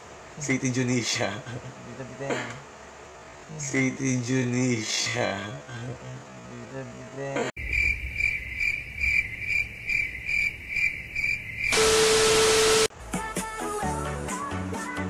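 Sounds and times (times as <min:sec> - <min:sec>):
cricket chirping: 0:07.6 - 0:12.9
burst of loud static: 0:11.7 - 0:12.9
music: 0:12.9 - 0:15.0.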